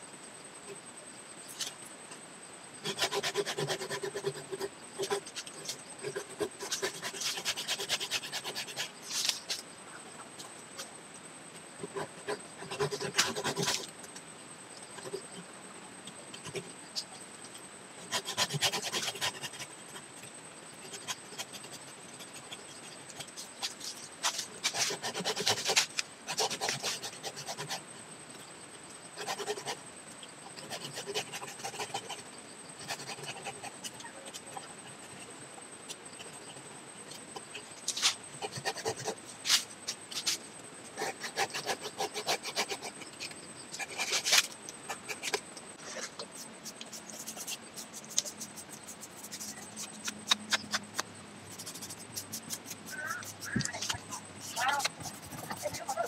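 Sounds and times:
hand saw rasping on wood: 2.8s - 5.2s, 6.1s - 8.9s, 18.1s - 19.6s, 24.2s - 27.8s, 41.0s - 42.9s, 53.3s - 56.0s.

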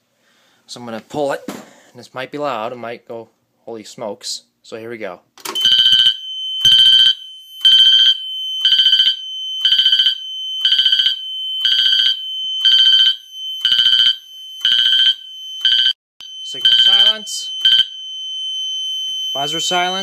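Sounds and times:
fire alarm bell pulses: 5.6s - 20.0s.

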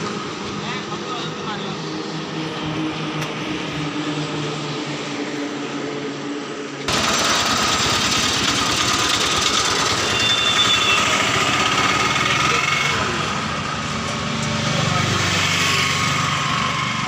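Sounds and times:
engine humming: 0.0s - 17.0s
fast mechanical rattle: 6.9s - 13.1s.

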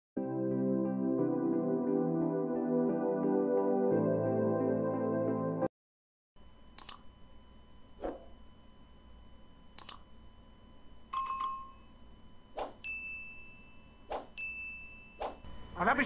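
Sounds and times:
faint steady hum: 6.4s - 16.0s
sharp mouse clicks: 6.8s - 7.0s, 9.8s - 10.0s.

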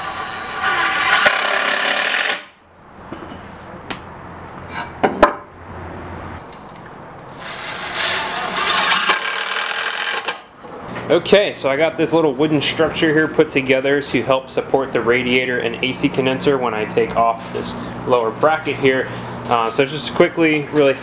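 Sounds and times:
cordless drill driving screws: 0.0s - 2.4s, 7.3s - 10.4s.

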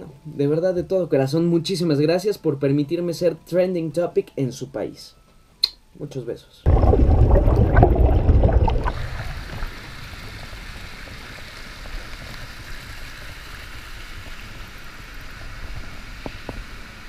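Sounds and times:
hot tub jets bubbling: 6.7s - 17.0s
small waterfall pouring into pool: 6.7s - 17.0s.

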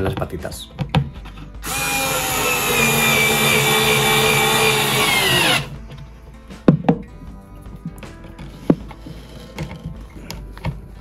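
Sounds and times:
electric drill whining: 1.6s - 5.8s.

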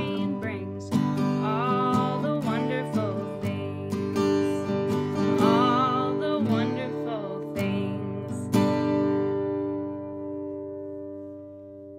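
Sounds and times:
woman singing: 0.0s - 9.2s
acoustic guitar chords strummed: 0.0s - 11.9s.

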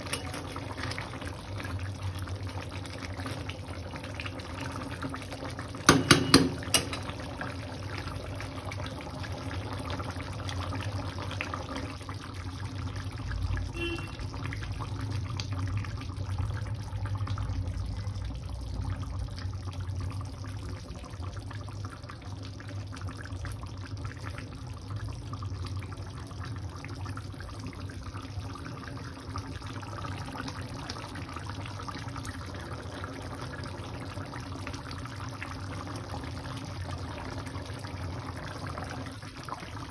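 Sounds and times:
metal spatula clanking on pan: 0.0s - 0.5s, 5.9s - 7.2s
curry simmering and bubbling in pan: 0.0s - 39.9s.

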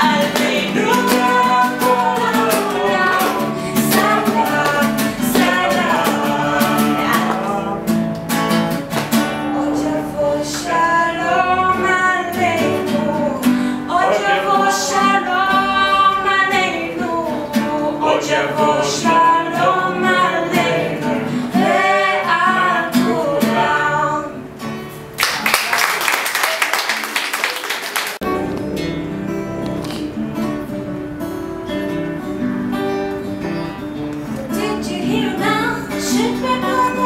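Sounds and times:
girl singing into microphone: 0.0s - 7.8s, 9.4s - 24.5s, 34.3s - 37.0s
strummed acoustic guitar: 0.0s - 25.2s, 28.2s - 37.0s.

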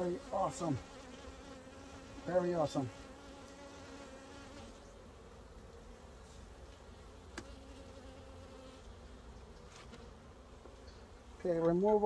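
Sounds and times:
bees buzzing: 0.0s - 12.0s.

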